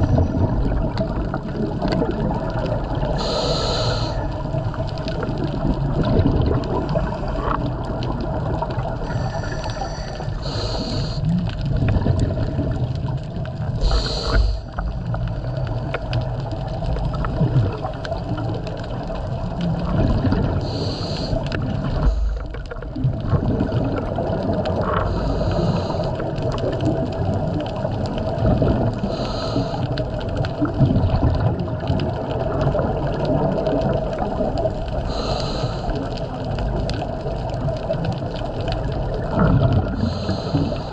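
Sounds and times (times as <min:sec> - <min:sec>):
bubbling exhalations: 0:00.0 - 0:37.8, 0:38.5 - 0:40.9
regulator hissing inhalation: 0:03.2 - 0:04.2, 0:09.1 - 0:11.3, 0:13.8 - 0:14.7, 0:20.6 - 0:21.4, 0:35.1 - 0:36.0
steady hum: 0:08.9 - 0:11.4.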